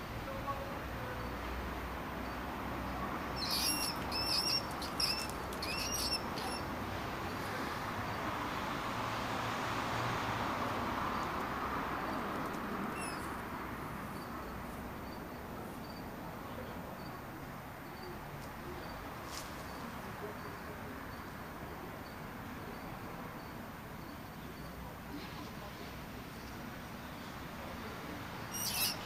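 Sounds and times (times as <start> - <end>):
steady outdoor hiss: 0.0 - 29.0
small animal squeaking: 3.4 - 6.8, 12.9 - 13.4, 28.5 - 29.0.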